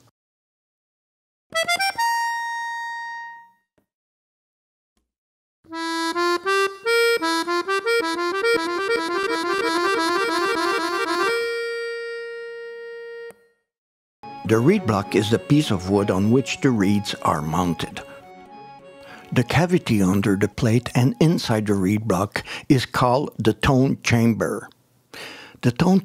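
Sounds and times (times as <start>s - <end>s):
accordion music: 1.5s - 3.6s, 5.7s - 13.6s, 14.2s - 22.2s.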